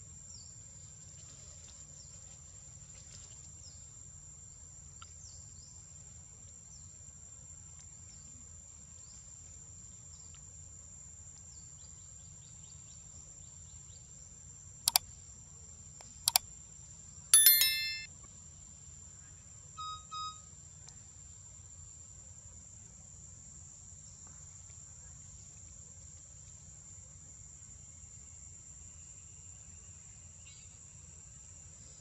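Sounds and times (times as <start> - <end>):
mouse-click sound effect: 17.4 - 18.1.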